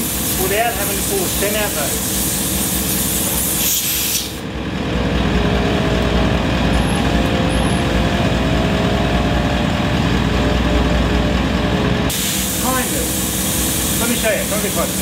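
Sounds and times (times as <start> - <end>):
air hiss from hose: 0.0 - 4.4, 12.1 - 15.0
air compressor pulsing drone: 0.0 - 15.0.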